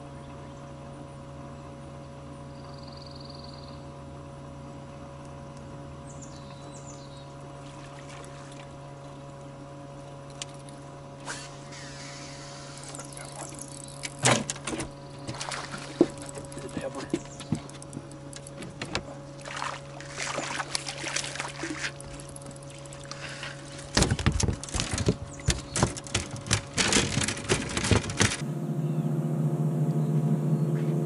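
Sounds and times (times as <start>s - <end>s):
electric motor humming: 21.8s - 31.0s.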